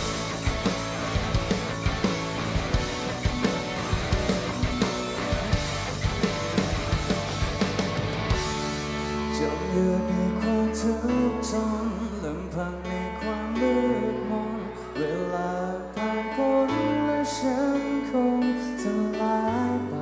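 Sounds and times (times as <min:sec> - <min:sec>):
live rock band playing: 0:00.0 - 0:10.9
person singing lead vocal: 0:08.9 - 0:20.0.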